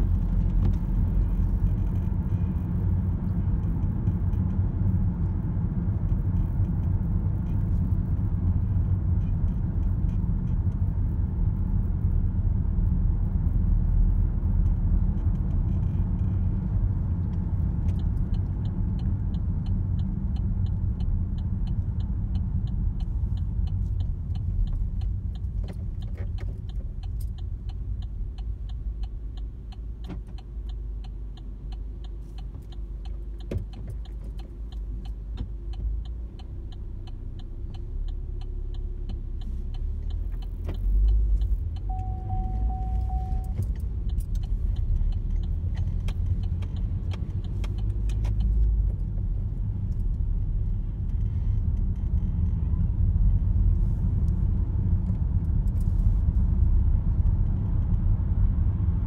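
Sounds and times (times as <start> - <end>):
car road and engine rumble: 0.0 - 59.0
light ticking: 14.5 - 52.6
single-tone beep: 41.9 - 43.6.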